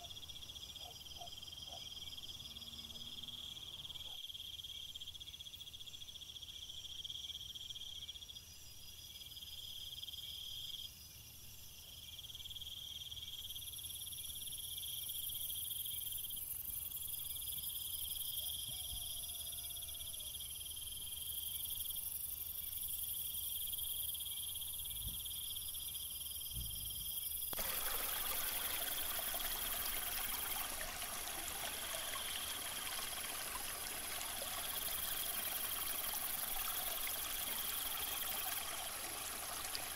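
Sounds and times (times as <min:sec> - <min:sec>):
insects trilling: 0:00.0 - 0:08.4, 0:12.2 - 0:39.9
small waterfall splashing: 0:27.6 - 0:39.9.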